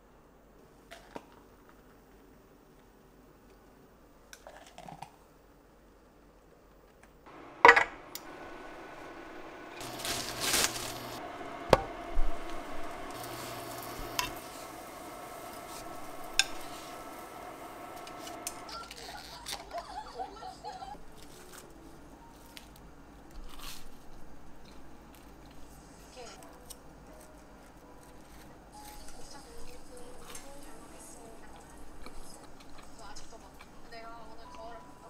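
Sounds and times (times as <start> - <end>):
bread sizzling in frying pan: 7.3 - 19.1
faint hum: 7.3 - 23.3
chopsticks tapping pan: 11.6 - 18.7.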